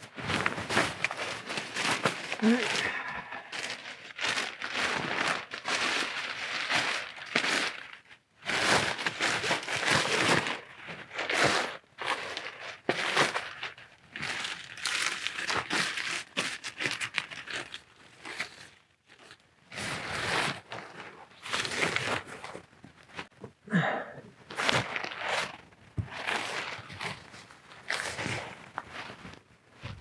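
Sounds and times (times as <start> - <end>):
tent fabric rustling: 0.0 - 7.9, 24.5 - 30.0.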